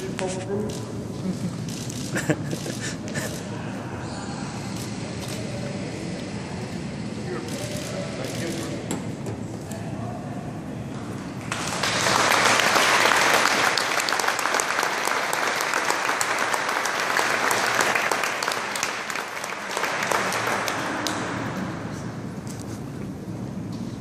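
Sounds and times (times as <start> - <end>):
audience applauding: 11.4 - 21.5.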